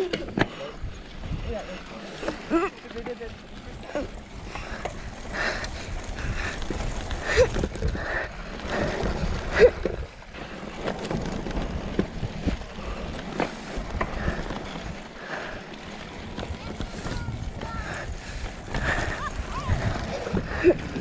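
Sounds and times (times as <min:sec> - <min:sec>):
wind rumbling on microphone: 0:00.8 - 0:02.6, 0:03.3 - 0:21.0.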